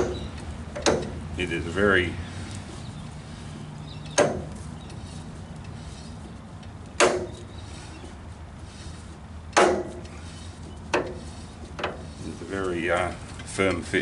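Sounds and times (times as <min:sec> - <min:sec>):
sharp metal clunks: 0:00.0 - 0:01.3, 0:04.0 - 0:05.0, 0:06.8 - 0:07.5, 0:09.5 - 0:10.2, 0:10.9 - 0:12.1.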